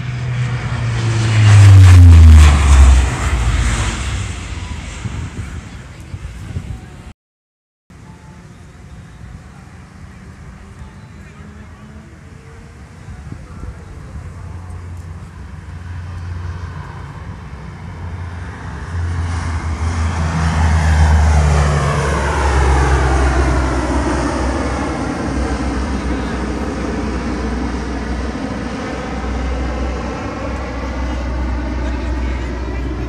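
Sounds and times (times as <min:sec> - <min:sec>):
turboprop plane flying overhead: 0:00.0 - 0:07.2, 0:07.9 - 0:33.0.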